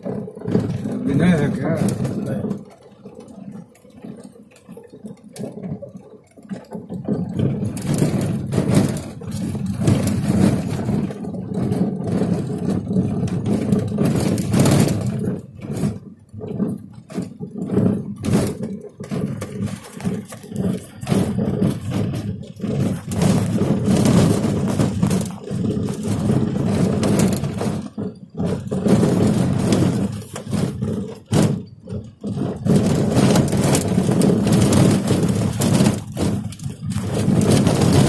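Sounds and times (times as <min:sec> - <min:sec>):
car interior road rumble: 0:00.0 - 0:38.0.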